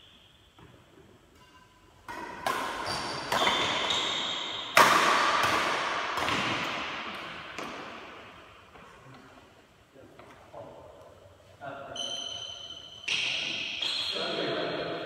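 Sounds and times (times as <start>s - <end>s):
racket hitting shuttlecock: 0.6s - 8.8s.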